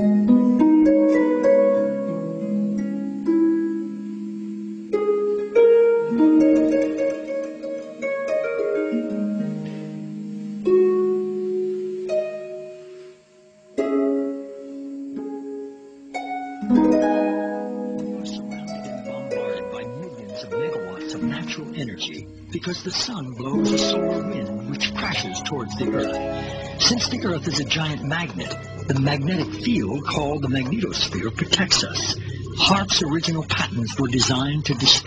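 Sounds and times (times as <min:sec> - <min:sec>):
solo harp music: 0:00.0 - 0:35.0.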